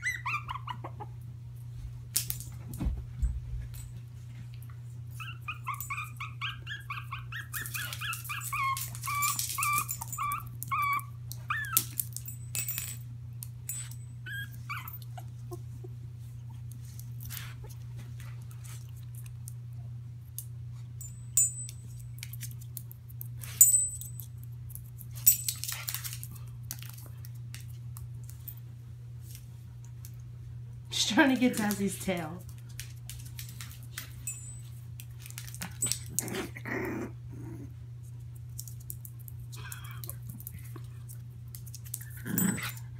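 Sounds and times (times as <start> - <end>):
small dog whimpering: 0.0 - 1.2, 5.2 - 11.8, 14.2 - 15.9
steady low hum: 0.0 - 42.9.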